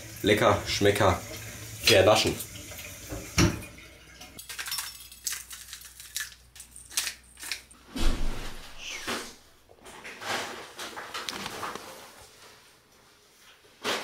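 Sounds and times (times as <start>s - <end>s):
spice shaker rattling: 4.4s - 7.7s.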